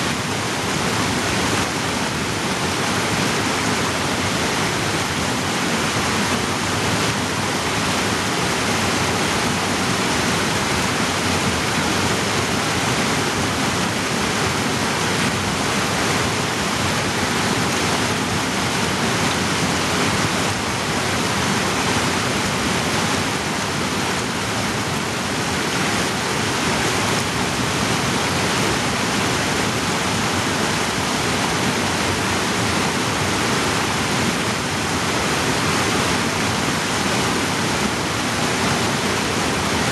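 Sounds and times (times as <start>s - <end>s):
creek rushing over boulders: 0.0s - 39.9s.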